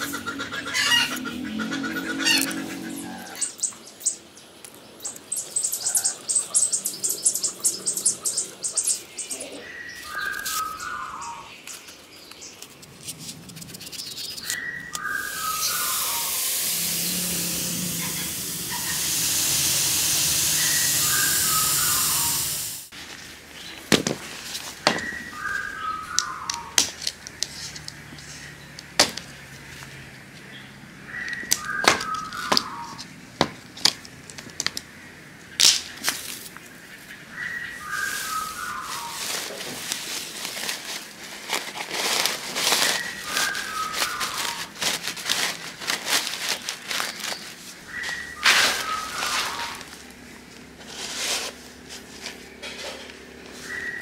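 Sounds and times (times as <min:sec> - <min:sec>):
plastic sack rustling: 0:22.9 - 0:25.8, 0:37.8 - 0:52.4.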